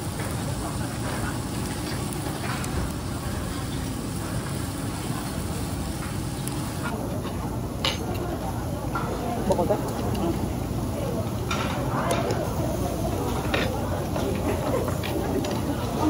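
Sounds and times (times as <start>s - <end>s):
meat sizzling on grill plate: 0.0s - 7.0s.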